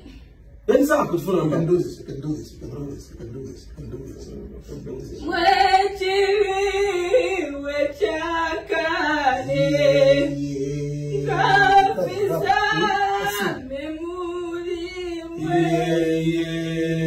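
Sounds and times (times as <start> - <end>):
low steady hum: 0.0 - 17.0
woman singing unaccompanied: 5.2 - 10.3, 11.1 - 16.0.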